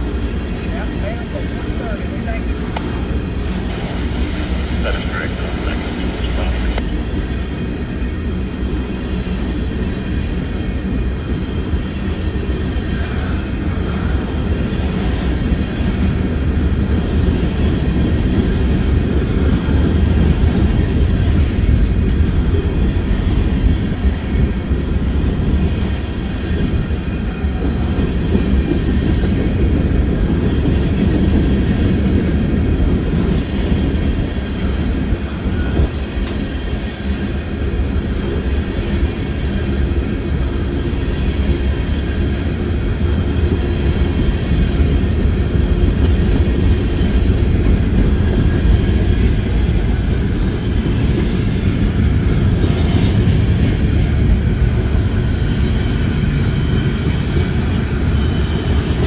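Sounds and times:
freight train wheels rumbling: 0:00.0 - 0:59.0.

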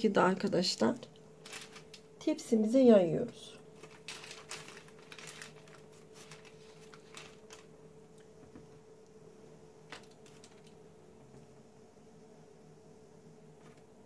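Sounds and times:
faint steady hum: 0:00.0 - 0:14.0
parchment paper rustling: 0:01.4 - 0:02.2, 0:03.5 - 0:08.8, 0:09.8 - 0:10.8.

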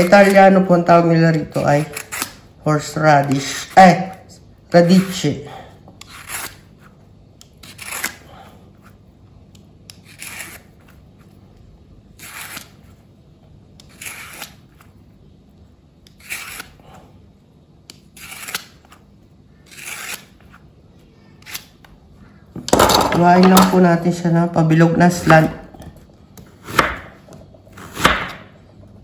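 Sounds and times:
vegetable peeler scraping radish: 0:00.0 - 0:04.1, 0:06.0 - 0:08.3, 0:09.9 - 0:11.0, 0:12.1 - 0:13.0, 0:13.8 - 0:14.9, 0:16.0 - 0:16.8, 0:17.9 - 0:19.0, 0:19.6 - 0:20.6.

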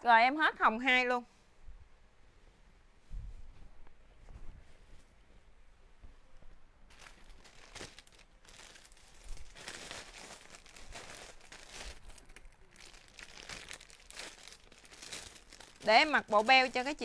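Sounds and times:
garment rustling and crinkling: 0:04.2 - 0:17.0.

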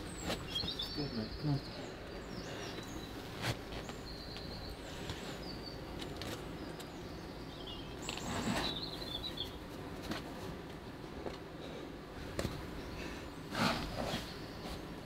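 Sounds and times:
small birds chirping and whistling: 0:00.0 - 0:09.6, 0:12.8 - 0:14.9
outdoor background hiss: 0:00.0 - 0:15.0.

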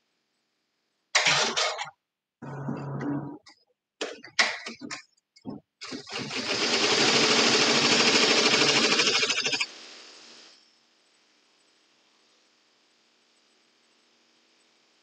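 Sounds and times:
embroidery machine stitching clatter: 0:01.2 - 0:01.9, 0:05.8 - 0:09.7.

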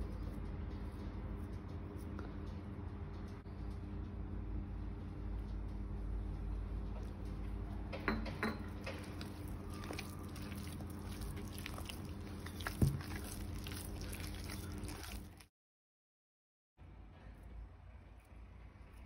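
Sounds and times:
dough squelching being kneaded: 0:08.7 - 0:15.5.

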